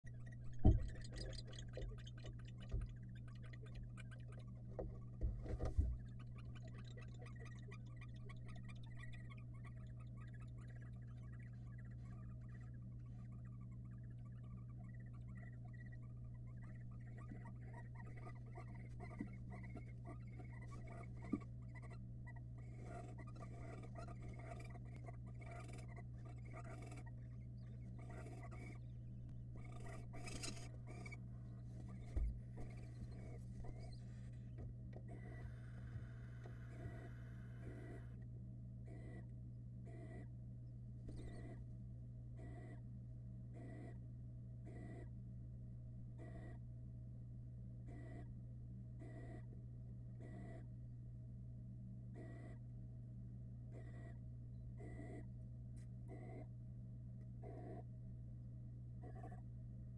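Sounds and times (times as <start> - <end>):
faint irregular ticking: 0.0 - 38.2
scratching and rustling of owls: 0.0 - 38.2, 38.8 - 40.3, 41.0 - 41.7, 42.4 - 42.8, 43.5 - 44.0, 44.7 - 45.1, 46.2 - 46.6, 47.9 - 48.3, 50.2 - 50.7, 53.7 - 54.2, 54.8 - 56.5, 57.4 - 57.9, 59.0 - 59.5
steady electrical hum: 0.0 - 59.9
dull thumps on wooden nest box: 0.5 - 1.2.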